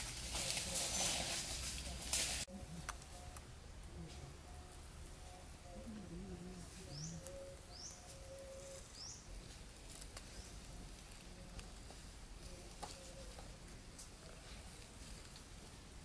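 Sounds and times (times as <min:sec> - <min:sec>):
low cooing bird call: 0:02.5 - 0:09.4, 0:12.4 - 0:14.4.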